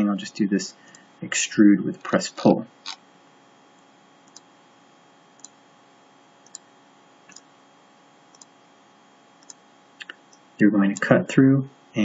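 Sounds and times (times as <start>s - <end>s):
low steady hum: 0.0s - 12.0s
computer mouse clicking: 4.2s - 4.5s, 5.4s - 5.6s, 6.4s - 6.7s, 7.3s - 7.5s, 8.3s - 8.6s, 9.4s - 10.4s.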